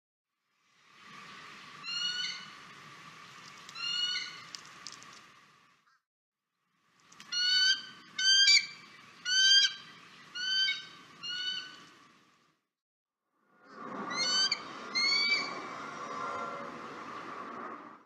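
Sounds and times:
faint steady hiss: 0.4 - 5.8, 6.7 - 12.6.

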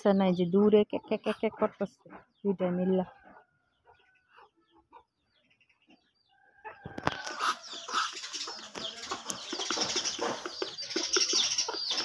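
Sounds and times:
chicken clucking and chirping: 0.0 - 12.0
chicken pecking at plastic feeder: 6.9 - 12.0.

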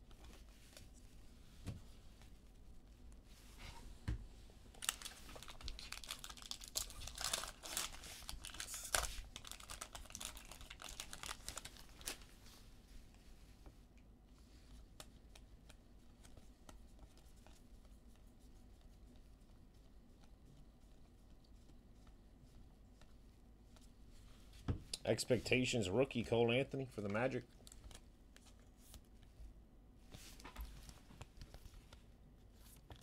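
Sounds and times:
plastic wrapper tearing and crinkling: 4.7 - 12.2.

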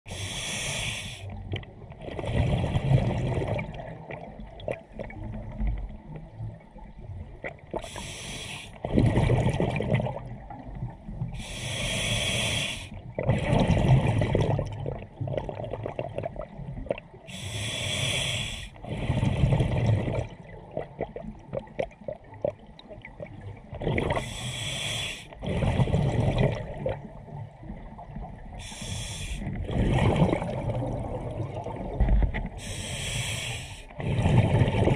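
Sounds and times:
regulator inhale hiss: 0.1 - 1.4, 7.8 - 8.8, 11.4 - 13.0, 17.3 - 18.9, 24.2 - 25.4, 28.6 - 29.6, 32.5 - 34.0
exhaled bubbles gurgling: 0.1 - 34.9.

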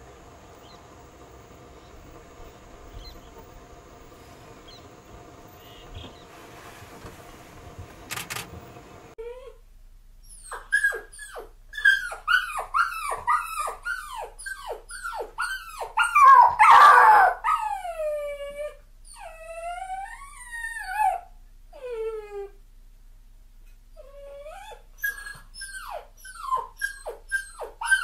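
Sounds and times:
dog yelping: 10.3 - 17.9, 24.4 - 28.0.

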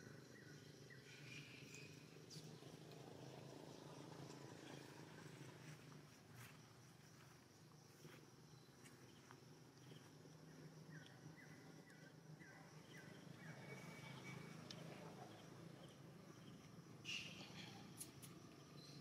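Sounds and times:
faint chirps: 8.0 - 19.0.

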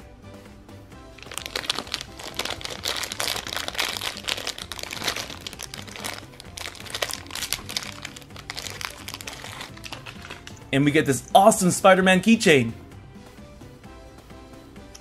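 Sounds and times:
background music: 0.0 - 15.0
plastic bag crinkling and tearing: 1.2 - 10.5.

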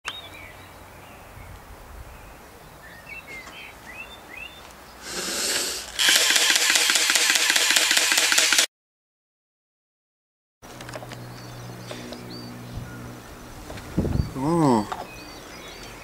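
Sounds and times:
birds chirping: 0.0 - 5.8, 10.7 - 16.0
short hiss: 5.0 - 6.2
loud rhythmic buzzing: 5.1 - 8.7.

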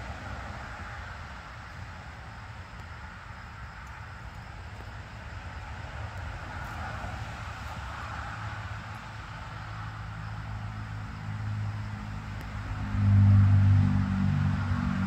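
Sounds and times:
faint outdoor hiss: 0.0 - 15.0
car engine humming: 9.6 - 15.0.

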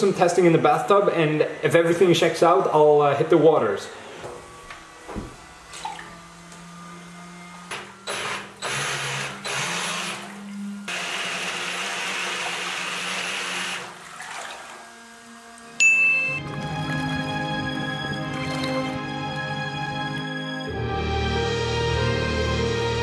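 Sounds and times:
electric motor whining: 0.0 - 20.3
water churning and spraying: 5.6 - 6.2, 8.7 - 15.8.

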